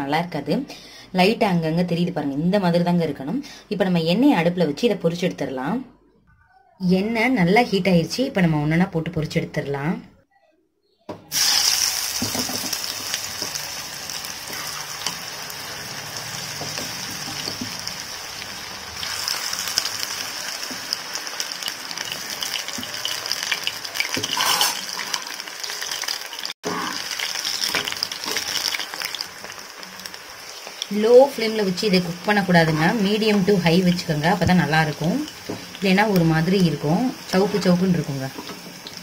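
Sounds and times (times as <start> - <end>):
battered vegetables deep-frying in oil: 11.3 - 39.0.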